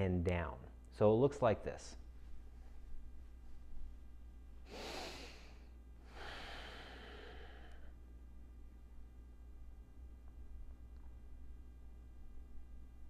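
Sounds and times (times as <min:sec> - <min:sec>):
man breathing in and out: 0:04.6 - 0:08.1.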